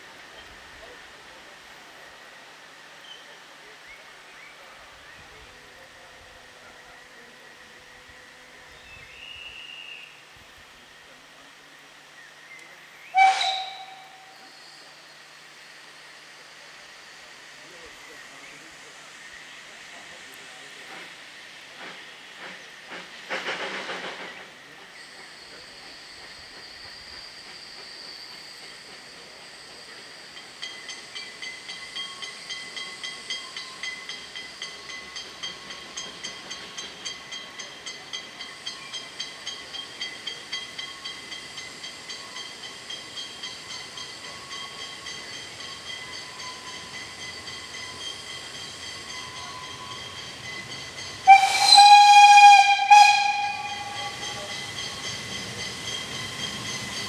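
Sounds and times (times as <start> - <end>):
steam hiss: 0.0 - 57.0
steam locomotive exhaust beats: 12.6 - 57.0
steam whistle: 13.1 - 14.9, 51.1 - 55.0
thin high squeal: 38.4 - 57.0.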